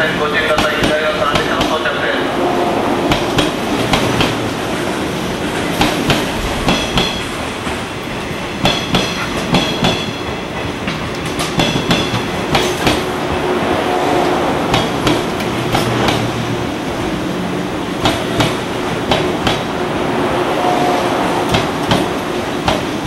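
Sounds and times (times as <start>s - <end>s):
train running rumble: 0.0s - 23.0s
train wheels clicking over joints: 3.1s - 13.5s, 14.7s - 16.5s, 17.9s - 19.7s, 21.5s - 23.0s.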